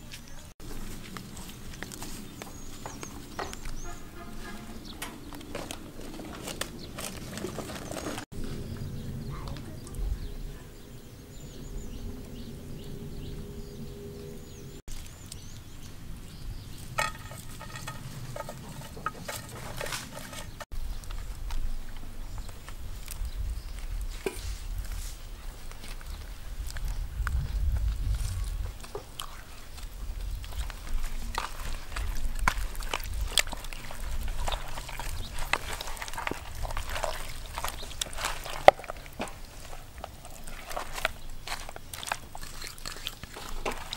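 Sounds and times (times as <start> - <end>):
hands squelching marinade into chicken: 29.1 - 43.9.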